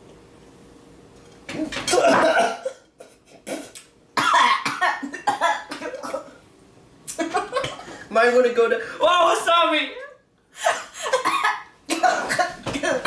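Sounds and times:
people coughing and gagging: 0:01.8 - 0:06.4, 0:07.1 - 0:07.9, 0:10.6 - 0:13.0.

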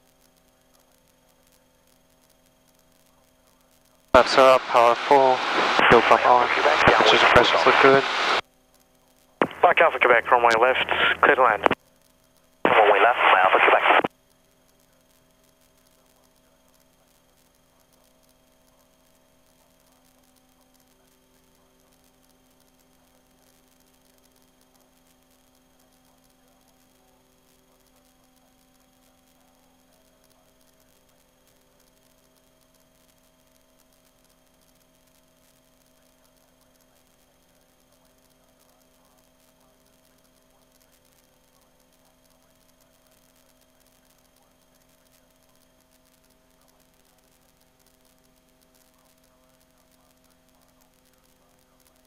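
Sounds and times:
faint electrical hum: 0:00.0 - 0:52.0
faint hiss: 0:04.2 - 0:08.4, 0:09.4 - 0:11.8, 0:12.7 - 0:14.1.

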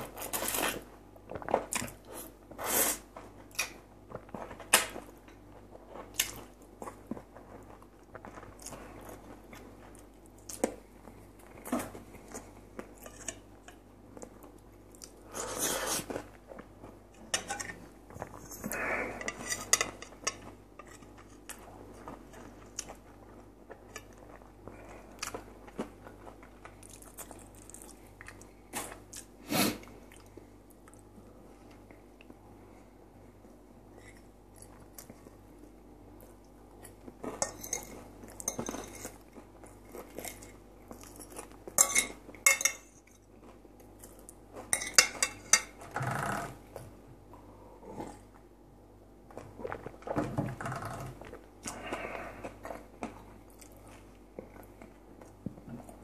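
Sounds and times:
fork scraping a plate: 0:18.5 - 0:21.5.

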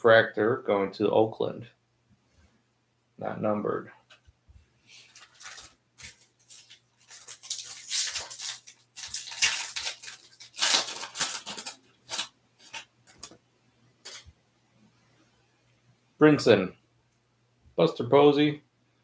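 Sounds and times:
foil wrapper tearing and crinkling: 0:05.0 - 0:13.4.

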